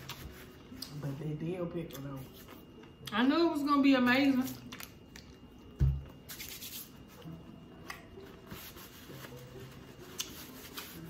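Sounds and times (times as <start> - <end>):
faint background music: 0.0 - 11.0
soft rustling of cotton candy: 6.8 - 11.0.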